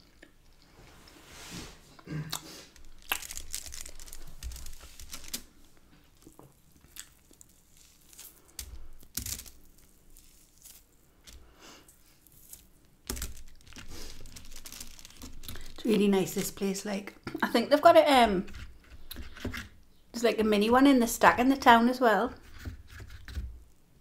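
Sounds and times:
bread tearing: 2.4s - 16.6s
foil crinkling: 2.6s - 16.7s.

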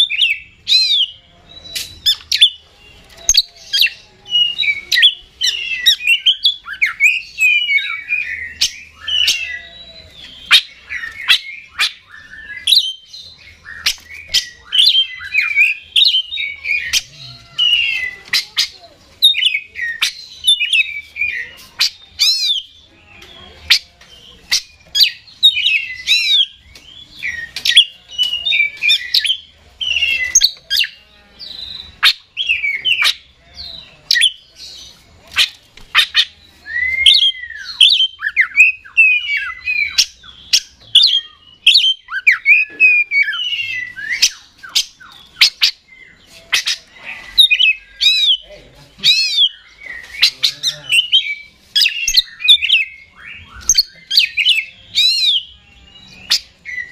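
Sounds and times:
bird singing whistled phrases: 3.2s - 23.8s, 35.4s - 56.9s.

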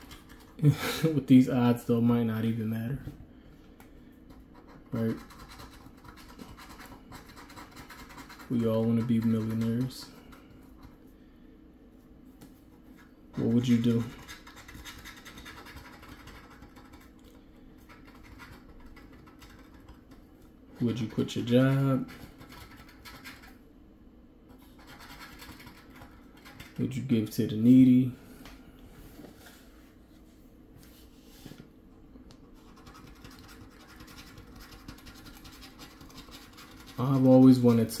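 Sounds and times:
coin scratching lottery ticket: 4.6s - 10.1s, 13.4s - 17.1s, 24.8s - 26.9s, 32.6s - 38.0s
coin scratching ticket: 4.6s - 10.1s, 24.8s - 26.9s.

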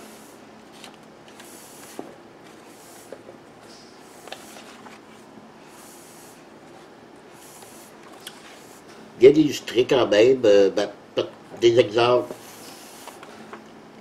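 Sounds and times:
pages rustling: 0.6s - 3.3s, 4.1s - 5.3s, 12.4s - 13.6s.

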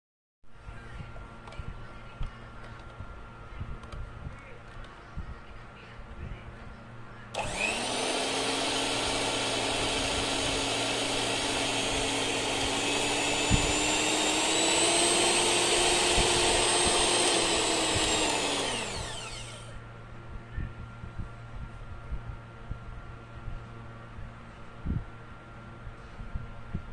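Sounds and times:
electric hand mixer motor whining: 7.4s - 19.7s.

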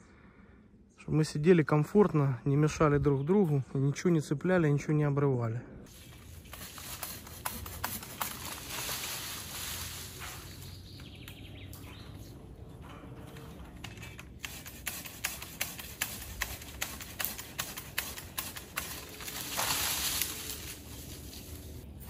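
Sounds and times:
branches rustling: 5.9s - 22.0s
hand saw cutting branches: 6.4s - 10.9s, 13.9s - 21.2s.

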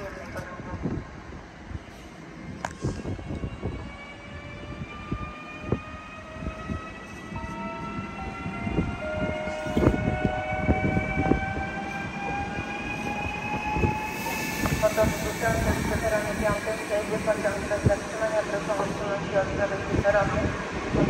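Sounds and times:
electric train motors whining: 9.4s - 19.2s.

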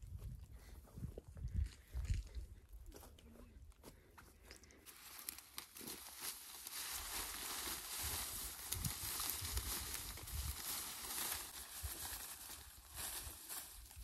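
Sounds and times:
footsteps on dry grass: 0.0s - 14.0s
dry reeds rustling and crackling: 4.7s - 14.0s.

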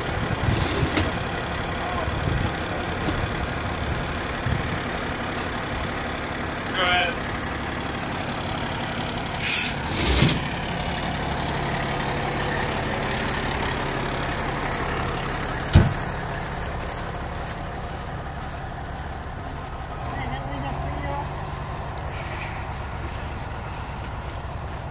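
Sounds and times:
diesel engine running: 0.0s - 24.9s
short air hisses: 9.4s - 10.4s
sharp thump: 15.7s - 16.0s.

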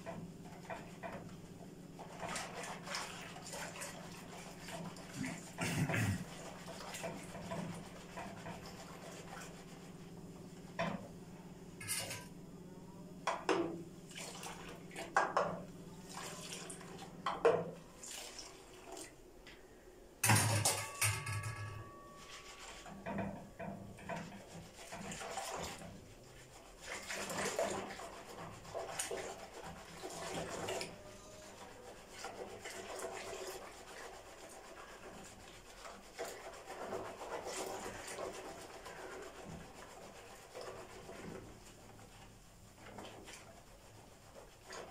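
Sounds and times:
whisk swishing in a bowl: 0.0s - 10.9s, 22.0s - 44.9s.

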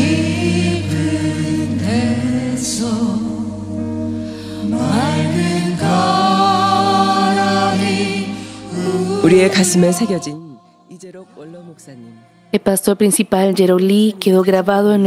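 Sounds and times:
choir and congregation singing hymn: 0.0s - 12.5s.

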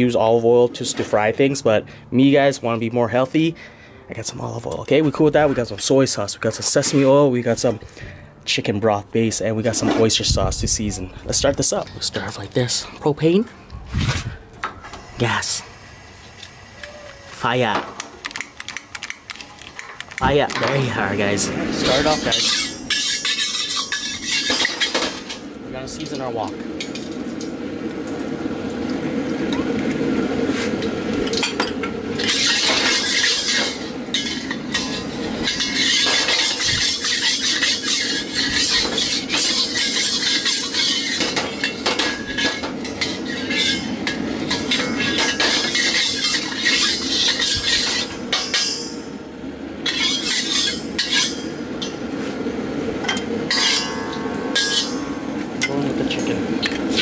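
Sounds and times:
gas burner roaring: 0.0s - 57.0s
metal spatula scraping wok: 20.6s - 25.4s, 30.5s - 49.1s, 49.8s - 52.0s, 53.5s - 57.0s
oil wiped around wok: 34.8s - 43.9s, 45.0s - 48.1s.

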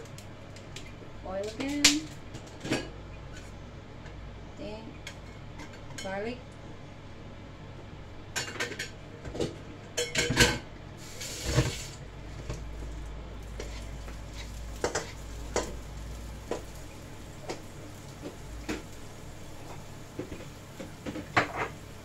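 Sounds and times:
spatula scraping wok: 11.0s - 12.0s, 13.5s - 15.9s
oil sizzling: 11.0s - 22.0s.

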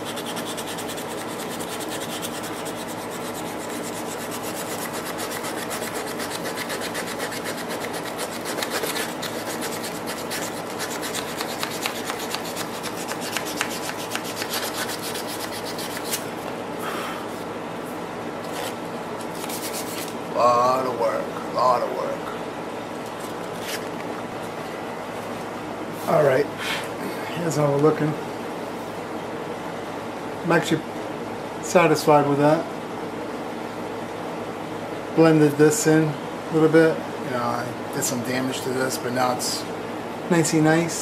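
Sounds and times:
file scraping wood: 0.0s - 16.2s.

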